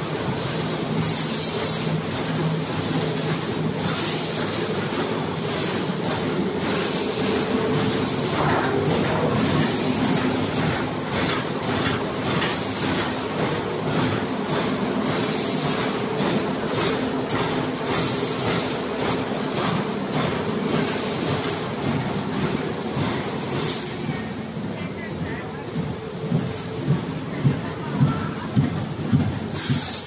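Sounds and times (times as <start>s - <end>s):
machine hum: 0.0s - 29.6s
busy machine clatter: 0.0s - 30.0s.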